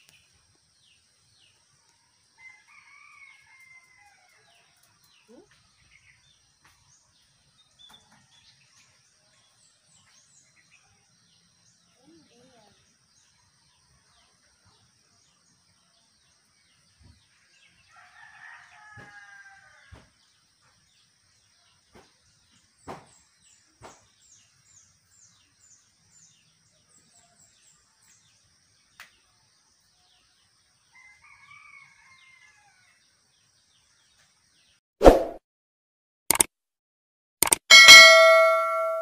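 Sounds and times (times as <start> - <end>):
rooster crowing faintly: 17.9 - 20.1
sharp clicks: 37.4 - 38.4.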